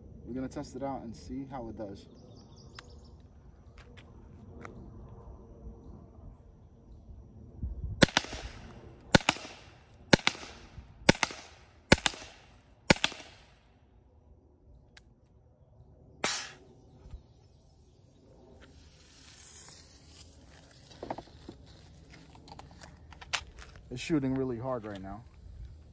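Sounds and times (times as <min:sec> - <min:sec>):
gas launcher firing sharp pops: 0:16.2 - 0:16.6
faint high hiss: 0:16.2 - 0:21.7.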